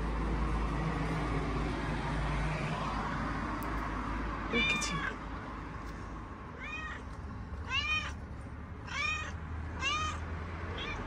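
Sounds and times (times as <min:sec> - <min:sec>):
kitten meowing: 0:04.5 - 0:05.2, 0:07.7 - 0:08.2, 0:08.9 - 0:11.0.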